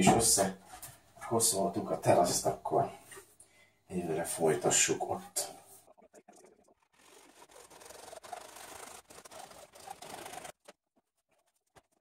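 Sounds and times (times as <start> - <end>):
saw scraping hard plastic: 6.8 - 12.0.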